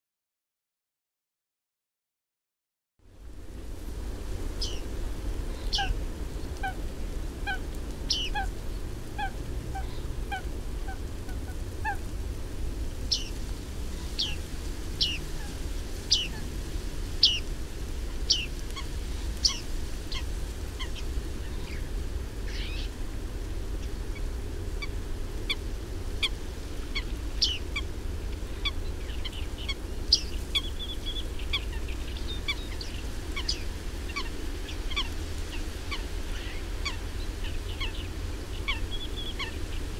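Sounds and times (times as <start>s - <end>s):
steady low rumble: 3.1s - 39.9s
lower bird call repeating: 5.6s - 6.0s, 7.5s - 8.5s, 13.1s - 13.4s, 14.1s - 14.4s, 16.1s - 16.5s, 17.2s - 17.4s.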